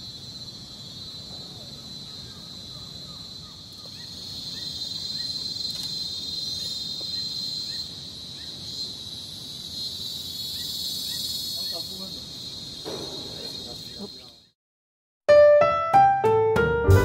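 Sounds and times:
high-pitched insect chorus: 0.0s - 14.6s.

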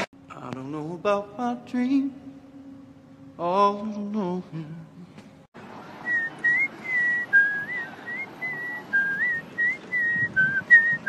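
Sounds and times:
person whistling a tune: 6.1s - 11.0s.

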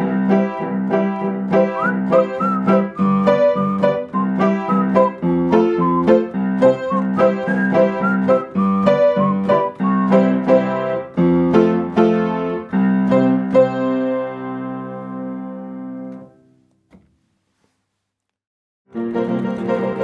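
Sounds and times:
upright piano chords: 0.0s - 16.6s, 18.9s - 20.0s.

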